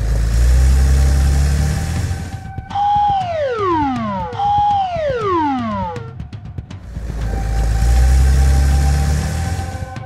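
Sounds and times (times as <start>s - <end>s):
faint background music: 0.0s - 10.0s
whistle tone sliding down: 2.1s - 6.1s.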